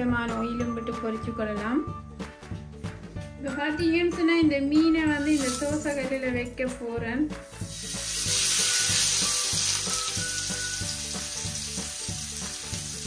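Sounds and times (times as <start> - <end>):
fish sizzling in oil: 5.2 - 6.2, 7.4 - 13.0.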